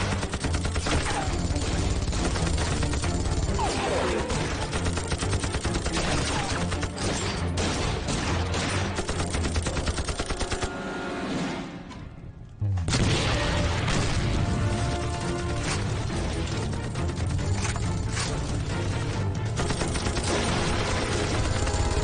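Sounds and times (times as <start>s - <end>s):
automatic gunfire: 0.0s - 10.7s, 19.6s - 22.0s
background music: 0.0s - 22.0s.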